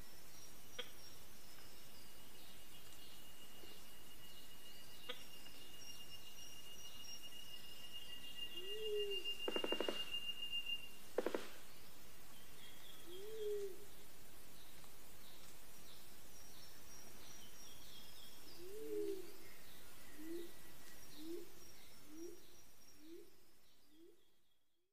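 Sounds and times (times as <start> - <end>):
birds chirping: 0.0 - 24.4
low bird notes: 2.5 - 11.9
steady high whistling tone: 2.6 - 11.6.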